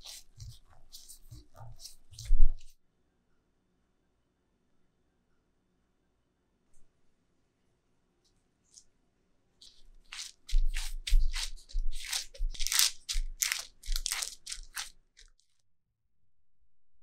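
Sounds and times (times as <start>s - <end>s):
parchment paper crinkling: 0.0s - 2.7s, 9.6s - 15.6s.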